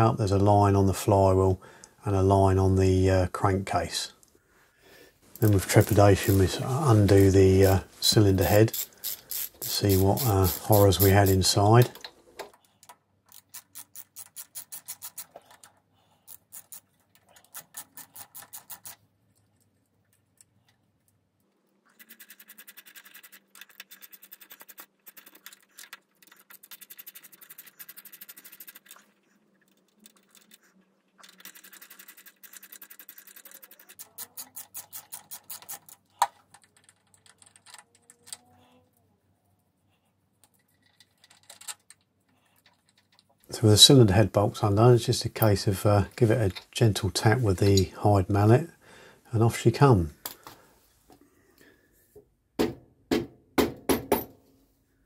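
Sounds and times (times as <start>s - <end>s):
socket ratchet clicking: 8.7s - 11.2s.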